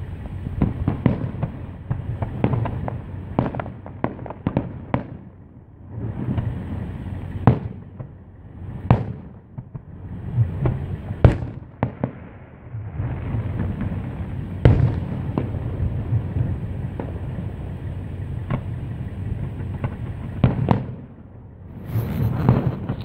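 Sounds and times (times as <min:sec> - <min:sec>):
fireworks bangs: 0:00.0 - 0:23.0
low rumble: 0:12.2 - 0:23.0.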